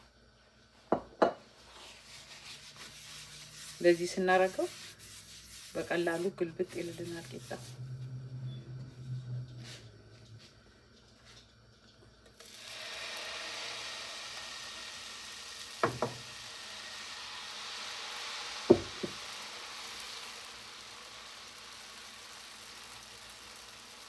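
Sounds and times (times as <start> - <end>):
batter sizzling in frying pan: 1.6 - 7.8, 12.3 - 24.0
ladle knocking on pan: 15.8 - 16.2.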